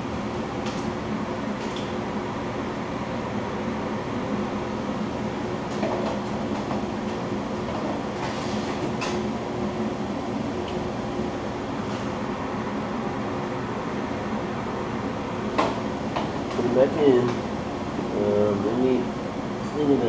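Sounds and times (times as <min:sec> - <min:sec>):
fan running: 0:00.0 - 0:20.0.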